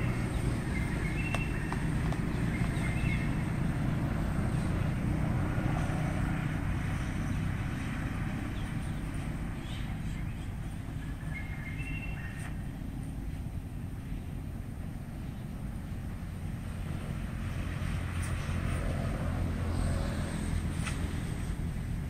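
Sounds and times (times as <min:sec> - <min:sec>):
bird chirping: 0:00.0 - 0:04.9, 0:08.5 - 0:12.7
steady low rumble: 0:00.0 - 0:22.0.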